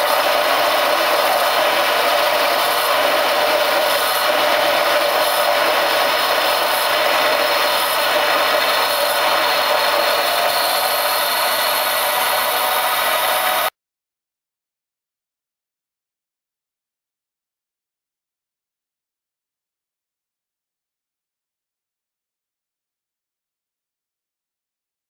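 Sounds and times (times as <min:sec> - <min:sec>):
lathe machining hiss: 0:00.0 - 0:13.7
motor whine: 0:00.0 - 0:13.7.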